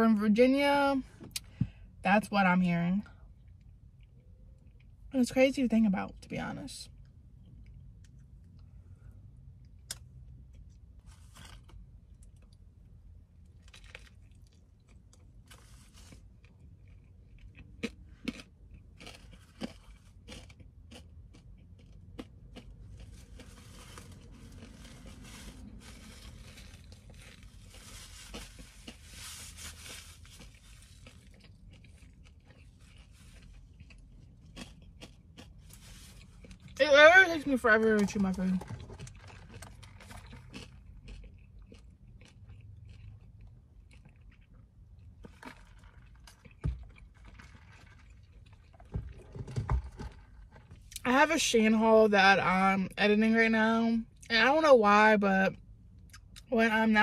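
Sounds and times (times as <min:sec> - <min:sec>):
low steady hum: 0:00.0 - 0:57.0
person chewing: 0:13.5 - 0:36.8, 0:38.7 - 0:49.3.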